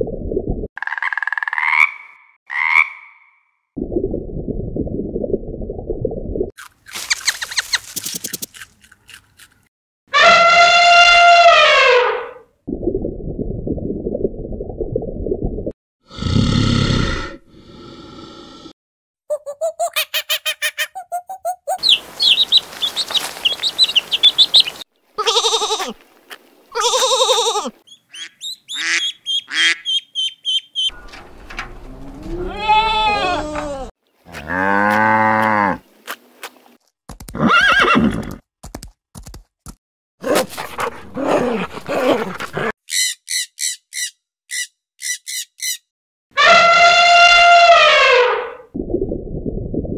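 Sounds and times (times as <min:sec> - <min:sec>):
rapid high chirps and clicks: 0:21.8 - 0:24.8.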